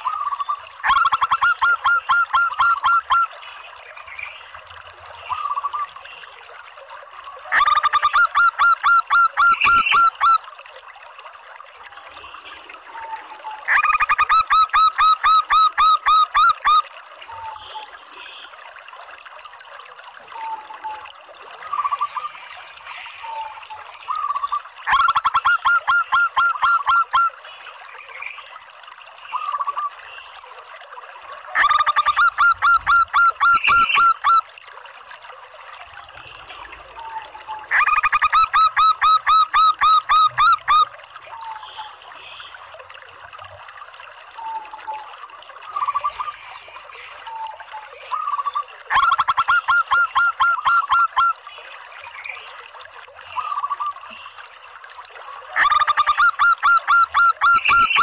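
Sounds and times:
dove calling rapid notes: 0.4 - 3.3, 7.5 - 10.4, 13.7 - 16.8, 24.1 - 27.3, 31.6 - 34.4, 37.7 - 40.9, 48.1 - 51.3, 55.6 - 58.0.

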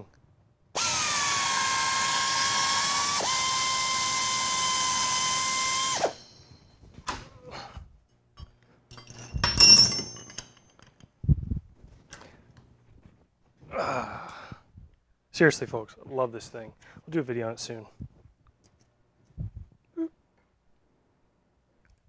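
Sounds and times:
tapping machine motor whine: 0.8 - 6.4
metallic clatter: 8.4 - 11.1.

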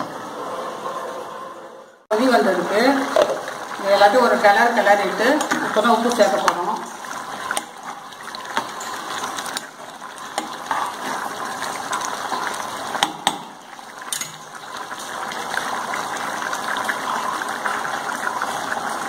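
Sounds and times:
gravy bubbling and popping: 3.0 - 19.0.

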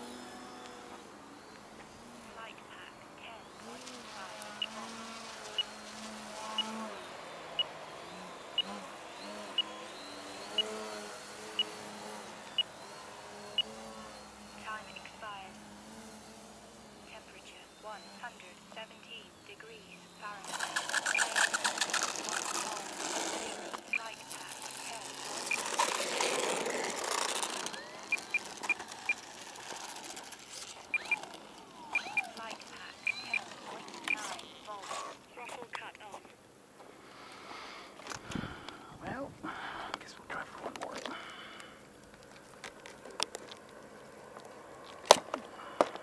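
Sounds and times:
model plane motor and propeller: 0.0 - 35.4, 40.7 - 46.0
transmitter beeping: 1.3 - 36.4.

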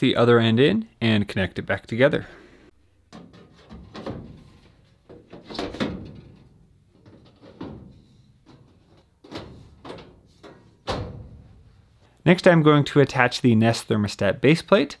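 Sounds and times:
sheet metal knocks and clanks: 3.1 - 11.8.

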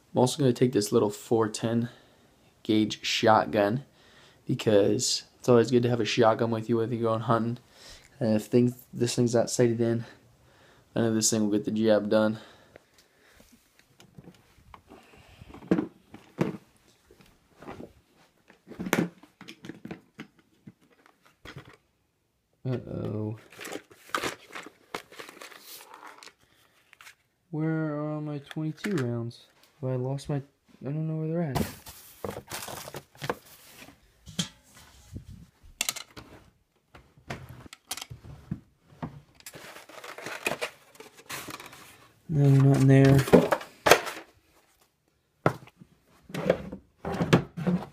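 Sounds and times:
plastic case clunking and knocking: 15.6 - 16.7.

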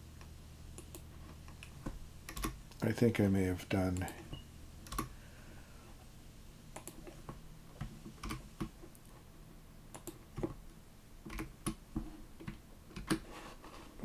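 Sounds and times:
computer keyboard typing: 2.3 - 2.6, 4.8 - 5.1, 6.8 - 7.1, 8.2 - 8.4, 9.9 - 10.5, 11.3 - 11.8, 12.4 - 13.2.

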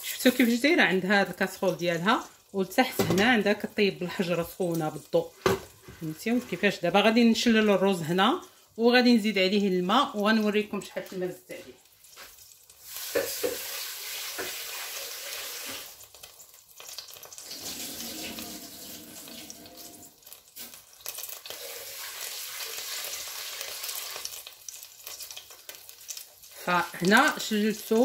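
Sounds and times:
tap water running into pot: 12.2 - 16.3, 16.9 - 24.6.

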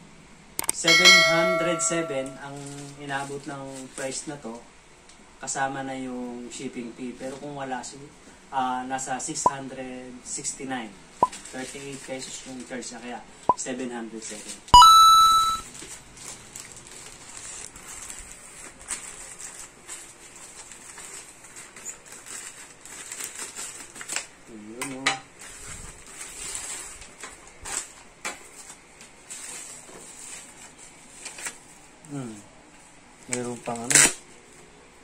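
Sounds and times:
plastic packaging crinkling: 15.7 - 24.4, 25.4 - 31.7.

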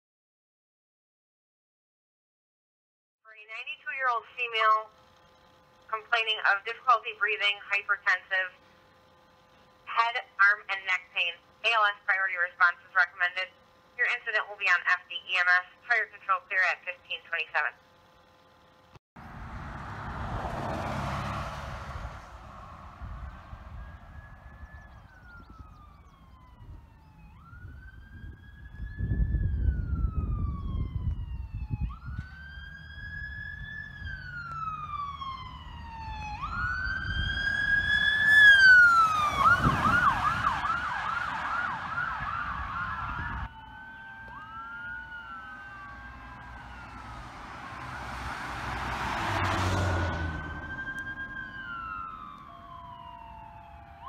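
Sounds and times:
emergency vehicle siren wailing: 3.4 - 54.0
road noise of passing vehicle: 17.8 - 54.0
siren wailing: 20.0 - 54.0.

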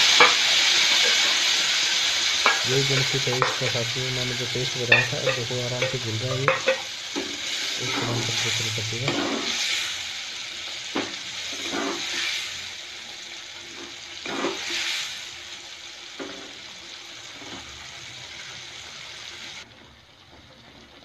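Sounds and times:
spoon scraping metal pan: 0.0 - 9.7, 11.5 - 12.3
paste sizzling in oil: 0.0 - 21.0.

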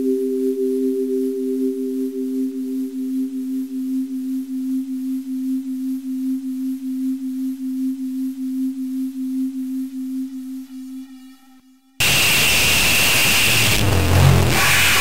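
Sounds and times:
low wavering electronic tone: 7.8 - 15.0
soft higher electronic tone: 12.0 - 15.0.

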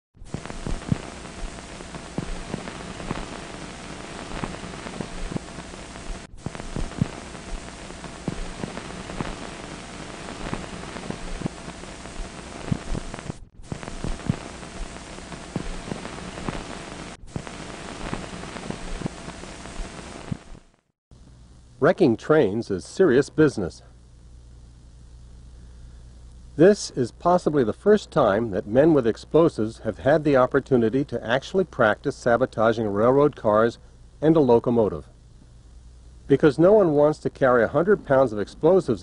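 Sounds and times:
scattered pops: 0.2 - 20.8
faint steady hum: 0.2 - 39.0
film soundtrack hiss and crackle: 0.2 - 39.0.

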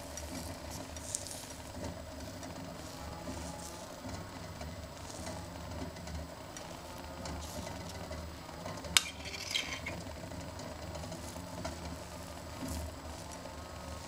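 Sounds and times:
low steady hum: 0.0 - 14.0
metal spoon clinking glass cup: 9.0 - 10.0
spoon scraping in frying pan: 9.0 - 10.0.

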